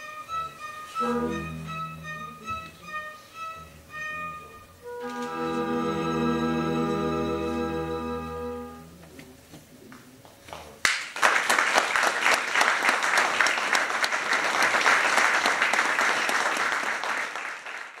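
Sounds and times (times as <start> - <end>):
orchestral chord: 0.0 - 9.0
audience applauding: 10.8 - 18.0.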